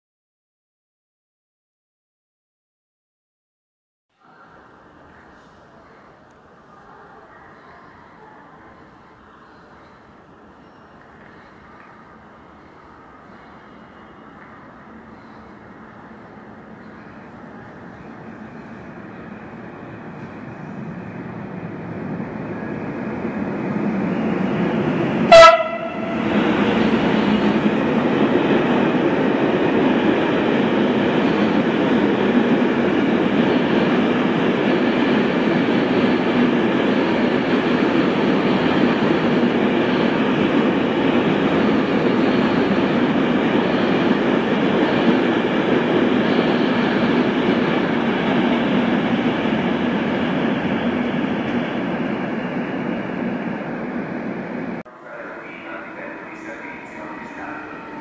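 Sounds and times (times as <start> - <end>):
freight train rumbling past: 11.2 - 58.0
train horn blast: 25.2 - 26.3.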